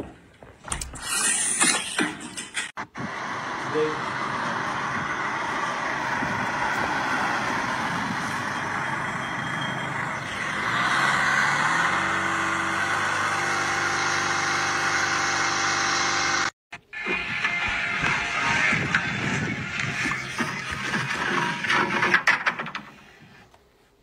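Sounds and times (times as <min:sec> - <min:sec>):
car engine running: 0:02.8 - 0:16.5.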